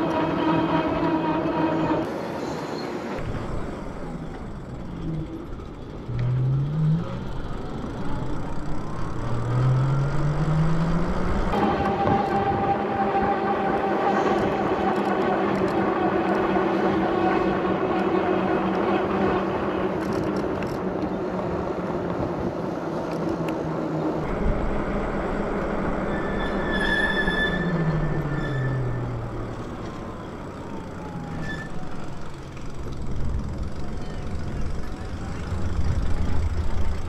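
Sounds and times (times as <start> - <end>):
electric bike motor whining: 3.2 - 12.6, 24.2 - 37.0
wind rumble: 10.0 - 37.0.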